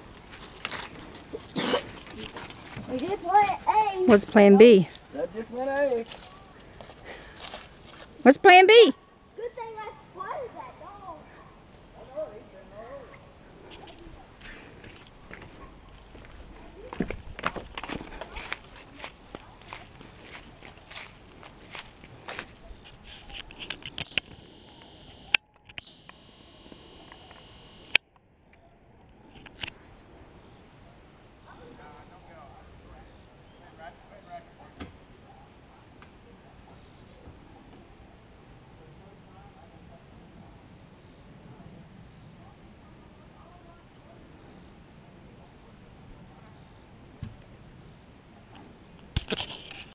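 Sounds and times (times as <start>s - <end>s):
crickets chirping: 0.0s - 49.9s
footsteps on dry leaves: 4.9s - 8.2s, 14.8s - 23.6s
camera zoom motor whine: 24.0s - 28.0s.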